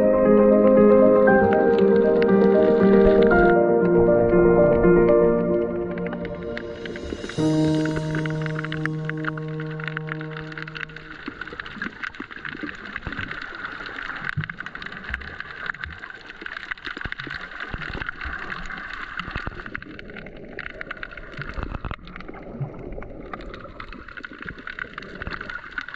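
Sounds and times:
crackling clicks: 1.0s - 25.9s
underwater hiss: 6.8s - 8.7s.

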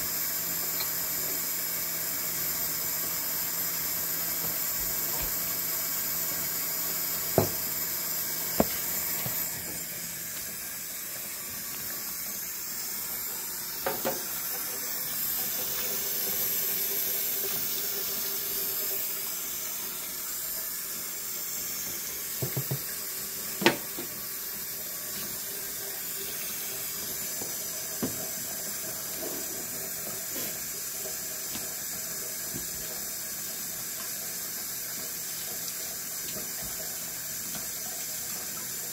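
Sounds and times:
faucet running into sink: 0.0s - 38.9s
dishes clinking against sink: 22.4s - 22.9s.

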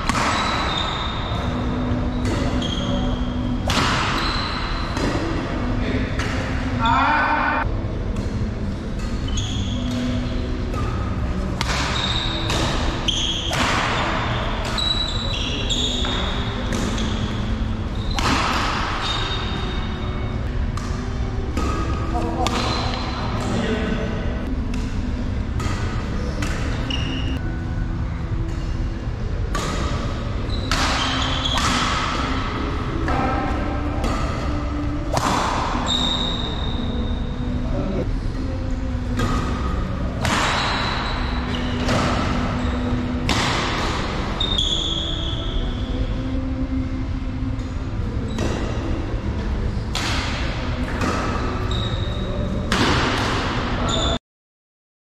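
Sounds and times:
racket striking shuttlecock: 0.0s - 2.9s, 3.6s - 5.4s, 8.1s - 15.1s, 15.8s - 23.6s, 24.4s - 27.4s, 29.5s - 35.9s, 39.0s - 44.6s, 49.9s - 51.9s, 52.7s - 53.8s
shoes squeaking on court: 0.1s - 5.3s, 9.0s - 23.7s, 25.6s - 27.4s, 29.6s - 32.4s, 35.8s - 37.2s, 40.3s - 46.0s, 50.8s - 52.6s, 53.8s - 54.2s.

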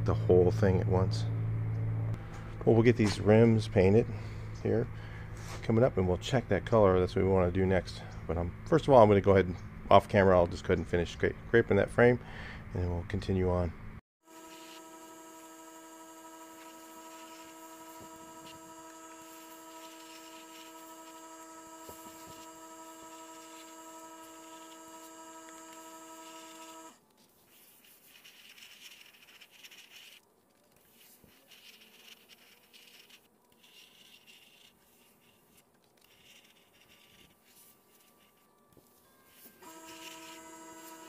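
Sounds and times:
steady multi-tone hum: 0.0s - 10.1s, 13.7s - 27.0s
air spray gun hissing: 14.4s - 27.0s.

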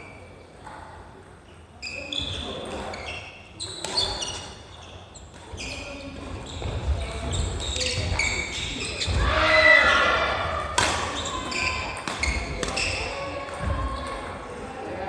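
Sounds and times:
sneakers squeaking: 1.5s - 14.5s
racket hitting shuttlecock: 10.5s - 13.8s.

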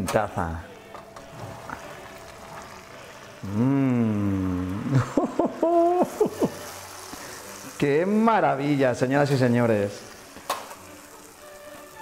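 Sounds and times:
hot fat sizzling: 0.0s - 12.0s
man exclaiming: 5.5s - 6.4s.

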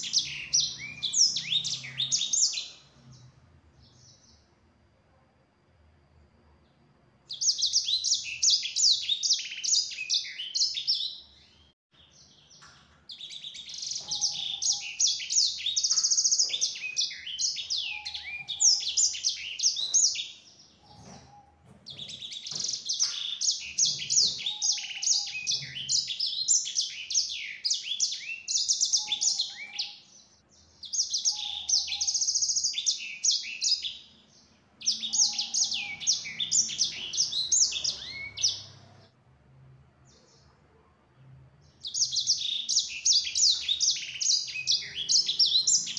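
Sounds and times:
finch twittering and trilling: 0.0s - 3.3s, 12.2s - 39.0s, 41.8s - 45.9s.

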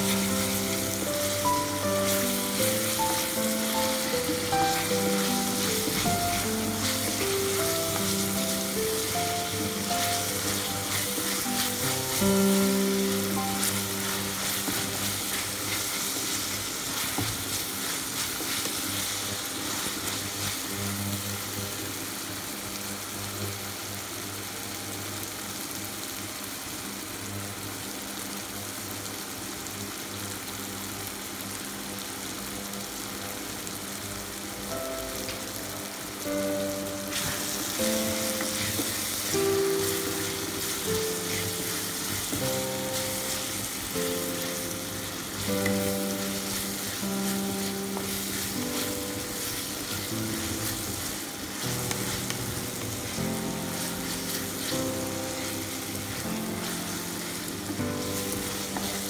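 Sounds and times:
soft background music: 0.0s - 20.6s, 34.6s - 59.0s
wooden spatula stirring: 0.0s - 20.7s, 37.0s - 59.0s
vegetables sizzling in oil: 0.0s - 59.0s.

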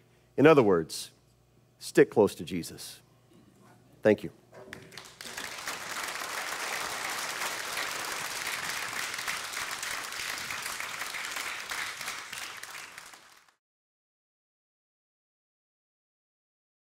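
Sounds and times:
audience applauding: 4.7s - 13.6s.

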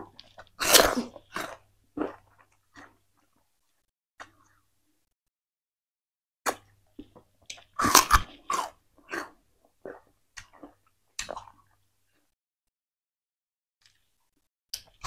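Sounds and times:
person chewing crunchy sugarcane: 0.0s - 3.3s, 6.5s - 11.7s.

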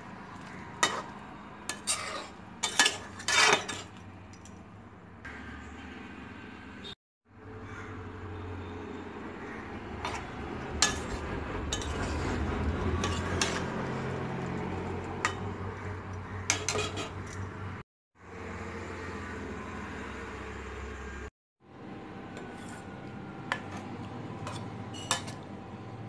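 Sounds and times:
metal spatula scraping metal pan: 0.8s - 4.0s, 10.0s - 14.0s, 16.4s - 17.4s, 22.4s - 22.9s, 24.4s - 25.4s.

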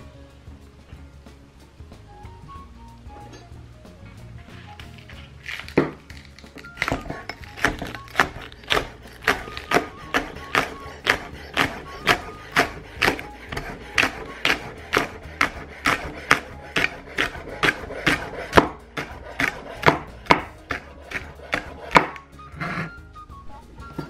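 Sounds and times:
knife chopping on wooden board: 5.5s - 6.0s, 6.6s - 22.8s.

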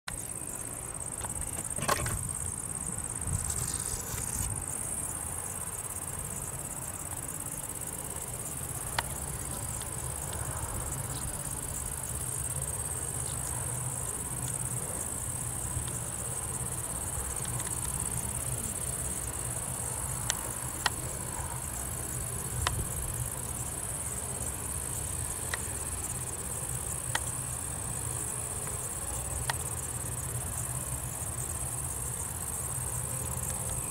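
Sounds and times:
high-pitched insect chorus: 0.1s - 33.9s.

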